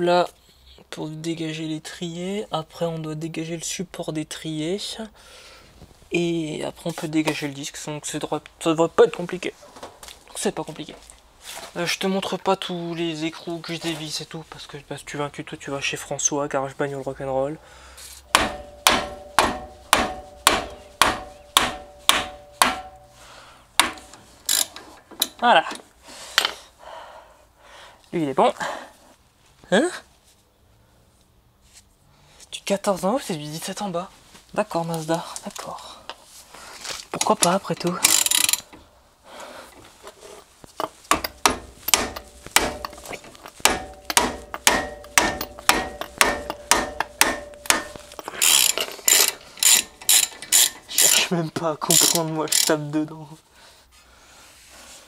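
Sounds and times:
hammer striking metal: 0:18.3 - 0:23.2, 0:23.8 - 0:24.1, 0:40.8 - 0:50.8.

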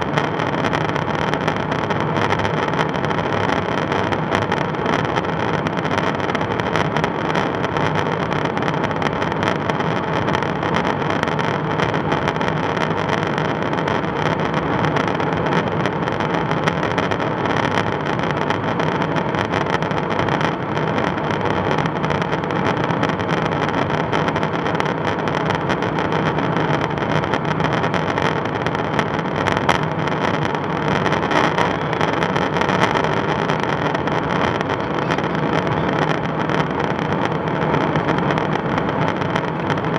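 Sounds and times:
jet engine and airflow drone: 0:00.0 - 0:39.9
steady hums: 0:00.0 - 0:39.9.

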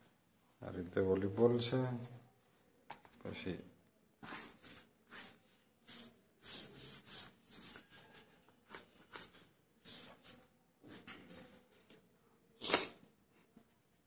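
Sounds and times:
pencil scratching on paper: 0:04.2 - 0:11.8.

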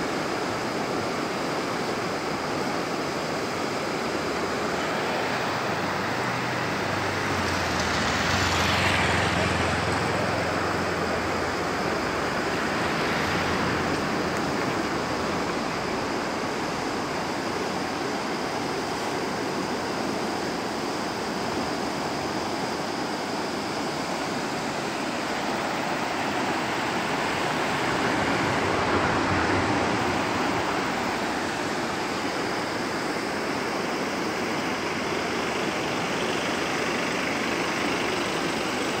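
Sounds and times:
river rushing: 0:00.0 - 0:39.0
car passing: 0:03.4 - 0:17.9, 0:23.4 - 0:39.0.

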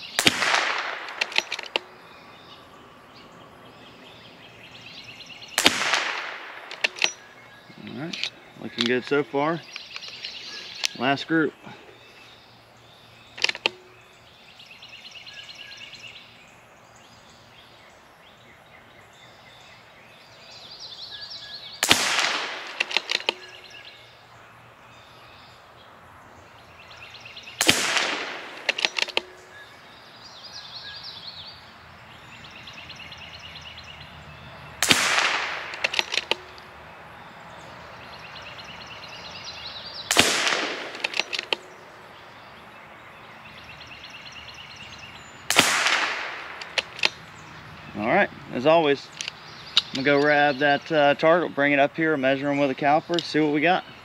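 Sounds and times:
birds chirping: 0:00.0 - 0:54.0
rifle shots: 0:00.2 - 0:01.8, 0:05.6 - 0:07.2, 0:21.8 - 0:23.5, 0:27.6 - 0:29.2, 0:34.8 - 0:36.4, 0:40.1 - 0:41.6, 0:45.5 - 0:47.2
rifle bolt clicks: 0:00.2 - 0:01.9, 0:05.6 - 0:07.2, 0:13.4 - 0:13.8, 0:21.9 - 0:23.5, 0:27.6 - 0:29.3, 0:34.9 - 0:36.6, 0:40.1 - 0:41.7, 0:45.5 - 0:47.2, 0:49.1 - 0:50.3.

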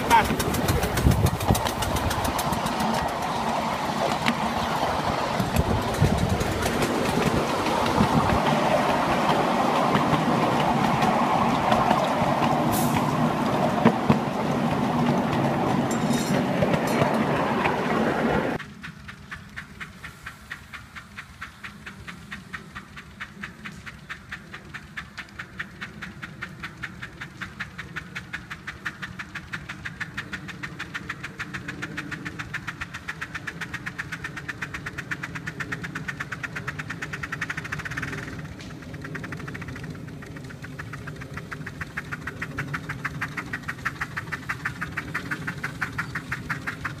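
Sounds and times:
steam locomotive chuffing: 0:00.0 - 0:47.0
train cars rattling over track: 0:00.0 - 0:47.0.

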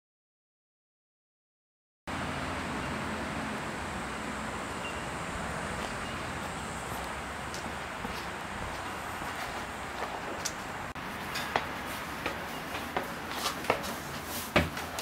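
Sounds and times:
steady wind hiss: 0:02.2 - 0:14.9.

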